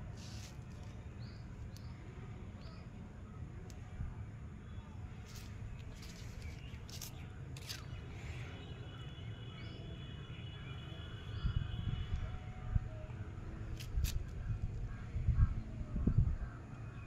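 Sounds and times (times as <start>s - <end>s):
soft clicks and rustles: 5.2s - 8.0s
steady low rumble: 11.4s - 17.0s.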